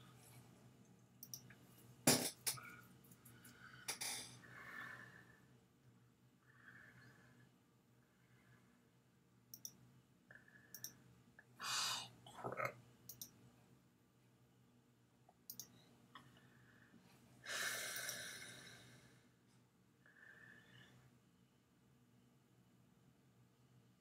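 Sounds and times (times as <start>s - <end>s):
computer mouse clicks: 1.2s - 1.6s, 9.5s - 9.8s, 10.7s - 11.0s, 13.1s - 13.4s, 15.5s - 15.8s, 18.0s - 18.2s
person breathing: 2.6s - 5.6s, 6.4s - 9.0s, 11.6s - 12.2s, 16.2s - 19.4s, 20.0s - 21.1s.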